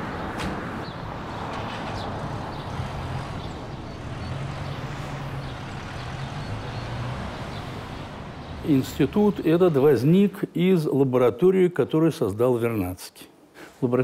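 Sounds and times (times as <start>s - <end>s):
road traffic drone: 0.0s - 10.6s.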